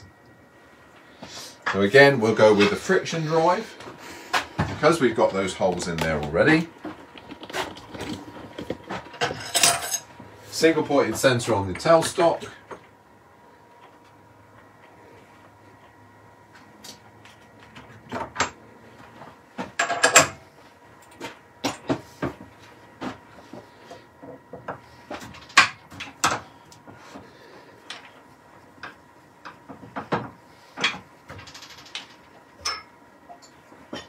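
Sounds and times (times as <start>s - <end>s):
metal and wood clicks and knocks: 5.7s - 9.4s.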